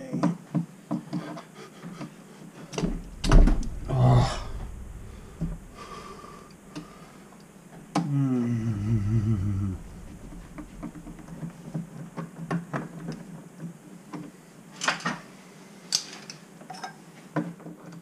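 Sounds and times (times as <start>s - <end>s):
low wavering sound: 2.8s - 6.7s, 8.5s - 11.4s.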